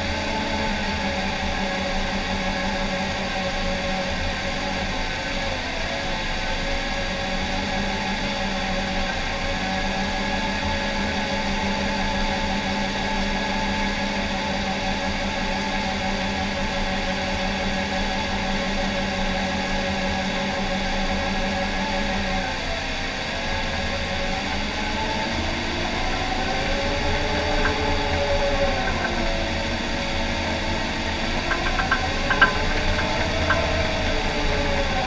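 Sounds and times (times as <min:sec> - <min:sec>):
bulldozer diesel engine from cab: 0:23.2 - 0:35.0.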